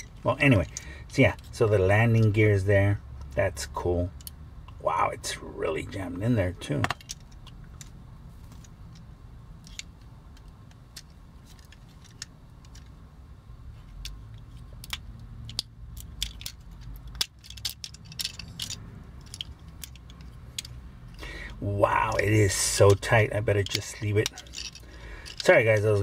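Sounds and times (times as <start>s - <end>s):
faint low hum: 0.0s - 26.0s
hard plastic toy clicking: 14.0s - 20.8s.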